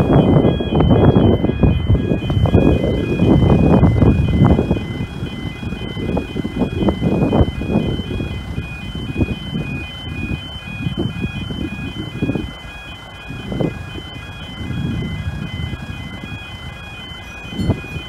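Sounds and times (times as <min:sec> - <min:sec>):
low rumble: 0:00.0 - 0:12.2
level crossing alarm two tones: 0:00.0 - 0:18.0.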